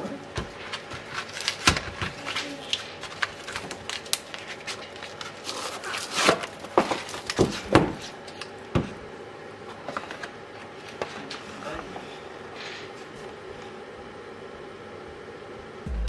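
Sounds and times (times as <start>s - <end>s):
cardboard box tearing open: 5.4s - 7.2s.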